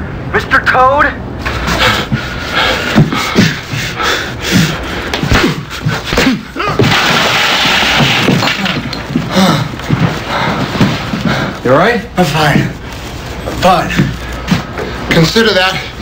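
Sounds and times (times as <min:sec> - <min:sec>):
punches and scuffling: 0:01.6 - 0:07.0
men grunting: 0:02.9 - 0:06.9, 0:09.1 - 0:10.5
crash and clatter into desk: 0:06.2 - 0:10.2.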